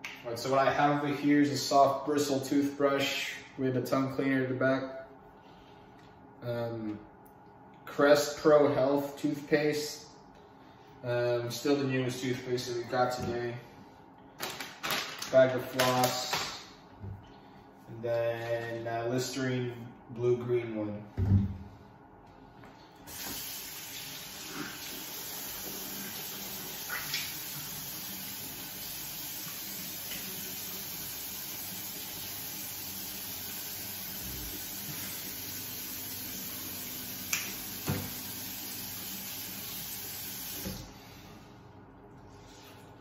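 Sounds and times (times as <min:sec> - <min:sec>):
tap running into sink: 0:37.3 - 0:38.3.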